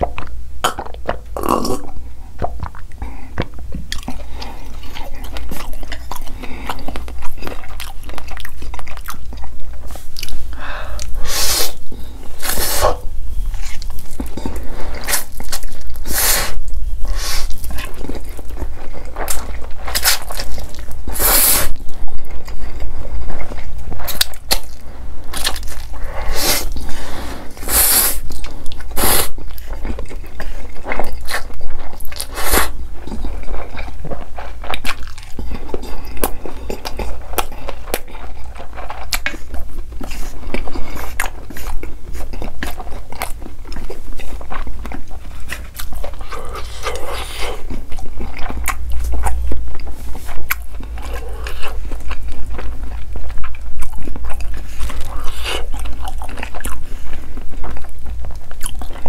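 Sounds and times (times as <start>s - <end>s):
clicking mouth sounds: 0.0s - 4.2s
chewing: 0.0s - 59.0s
slurping noodles: 19.2s - 21.8s.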